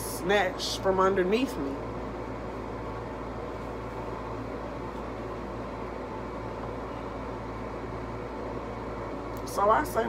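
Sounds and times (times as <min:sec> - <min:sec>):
steady background hum: 0:00.0 - 0:10.0.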